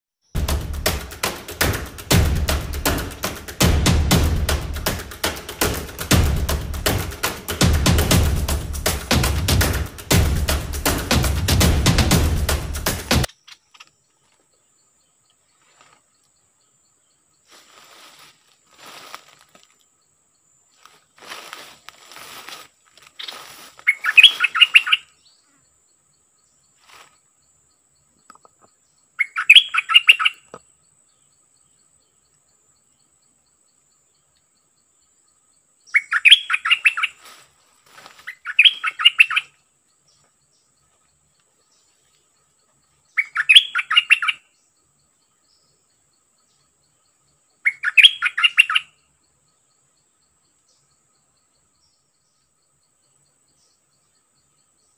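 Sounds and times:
brush rustling: 0:00.4 - 0:14.4, 0:17.4 - 0:19.8, 0:20.7 - 0:25.0, 0:26.8 - 0:27.2, 0:36.7 - 0:39.3
bulbul chattering calls: 0:23.2 - 0:25.2, 0:29.2 - 0:30.5, 0:35.9 - 0:37.2, 0:38.2 - 0:39.6, 0:43.1 - 0:44.6, 0:47.6 - 0:49.0.

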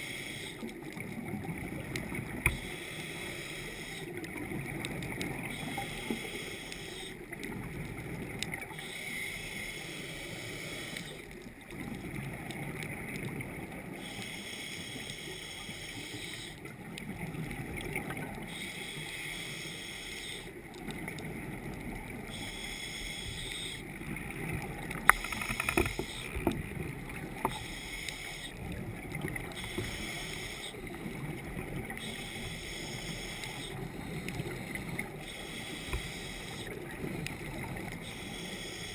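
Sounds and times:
diver breathing through regulator: 0:00.0 - 0:00.7, 0:02.4 - 0:04.2, 0:05.5 - 0:07.3, 0:08.7 - 0:11.4, 0:14.0 - 0:16.6, 0:18.4 - 0:20.6, 0:22.3 - 0:23.9, 0:25.1 - 0:26.5, 0:27.3 - 0:28.7, 0:29.4 - 0:31.2, 0:31.9 - 0:38.9
sharp clicks: 0:24.9 - 0:26.6.

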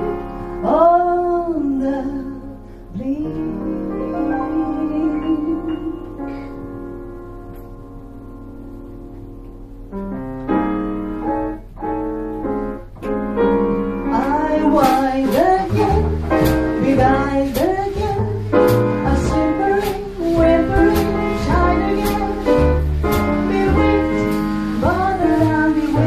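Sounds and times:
woman singing: 0:00.0 - 0:06.3, 0:14.0 - 0:26.0
piano chords: 0:00.0 - 0:26.0
upright bass: 0:09.6 - 0:26.0.

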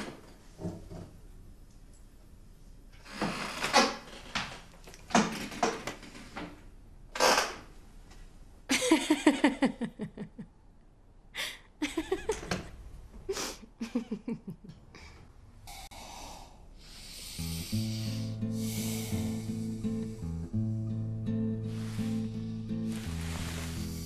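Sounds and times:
woman laughing: 0:08.7 - 0:10.6, 0:11.4 - 0:12.7, 0:13.3 - 0:15.0.

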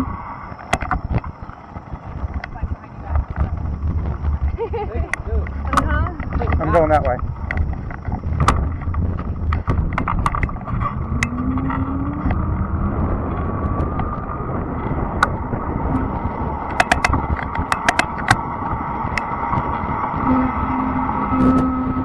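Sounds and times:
sharp clicks and rattles: 0:00.0 - 0:12.4, 0:15.1 - 0:19.9
bike riding rumble: 0:00.0 - 0:22.0
faint steady whine: 0:00.0 - 0:22.0.

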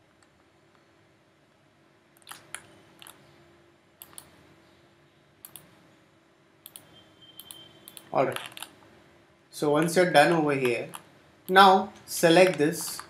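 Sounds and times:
soft room hiss: 0:00.0 - 0:13.0
computer mouse clicks: 0:02.2 - 0:03.2, 0:04.0 - 0:04.4, 0:05.4 - 0:05.7, 0:06.6 - 0:08.9.

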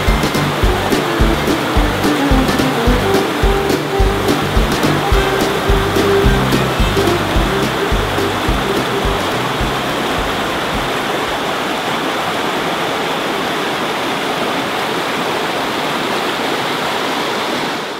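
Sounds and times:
music track with a beat: 0:00.0 - 0:11.0
stream rushing over boulders: 0:00.0 - 0:17.9.

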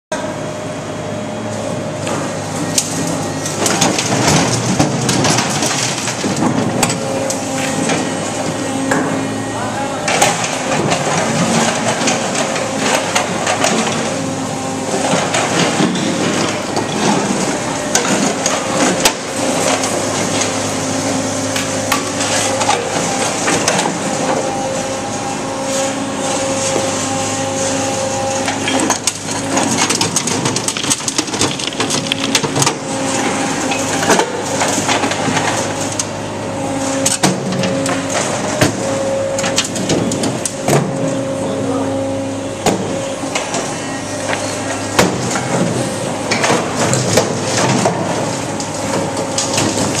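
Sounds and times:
hydraulic hum: 0:00.1 - 0:50.0
concrete chunks clattering in steel bin: 0:03.5 - 0:08.5, 0:10.0 - 0:21.1, 0:26.0 - 0:36.0, 0:42.8 - 0:50.0.

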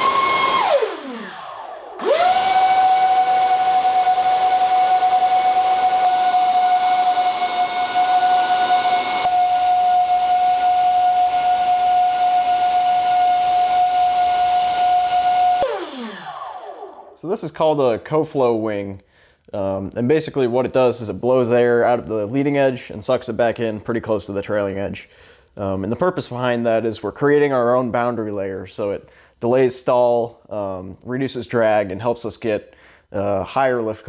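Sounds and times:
electric ducted fans whining: 0:00.0 - 0:17.4.

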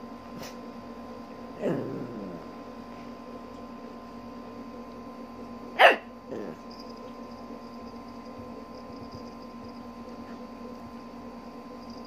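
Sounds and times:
puppy barking: 0:05.8 - 0:06.6
puppy yapping: 0:05.8 - 0:06.6.

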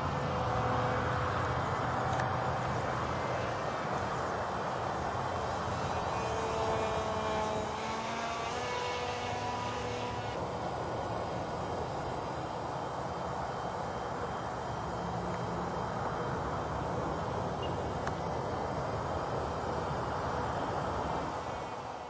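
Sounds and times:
electric motor and propeller whining: 0:00.0 - 0:22.0
steady hiss: 0:09.5 - 0:22.0.

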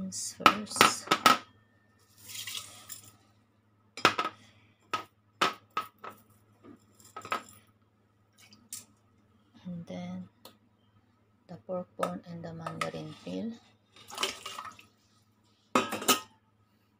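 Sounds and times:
beans pouring into pot of water: 0:02.2 - 0:02.9
dishware clinking: 0:15.8 - 0:16.3.

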